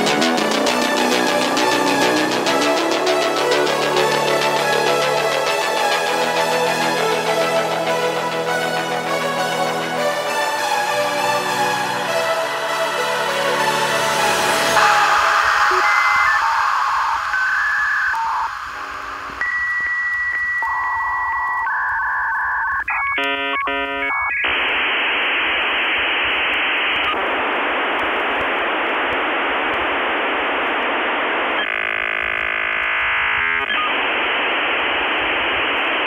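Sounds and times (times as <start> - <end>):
radio-like static hiss: 13.5 - 36.0
steady beeping tones: 14.0 - 24.6.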